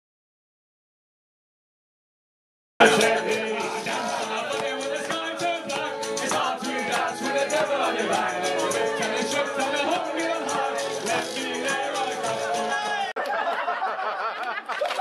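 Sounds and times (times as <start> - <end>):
loud party music: 2.8 - 13.2.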